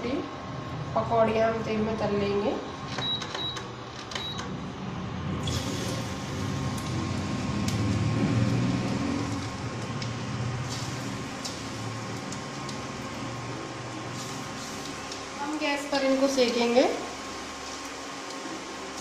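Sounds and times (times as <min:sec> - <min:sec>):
cooktop humming: 0:00.0 - 0:19.0
hot oil sizzling: 0:05.3 - 0:19.0.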